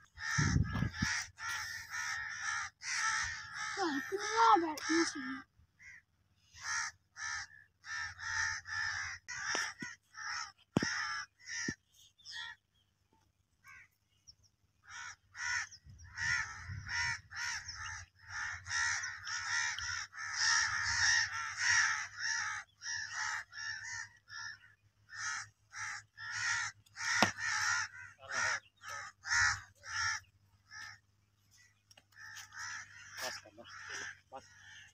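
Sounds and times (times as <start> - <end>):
crows cawing: 0.0 - 12.7, 13.6 - 14.0, 14.8 - 34.9
sharp crack: 27.1 - 27.5.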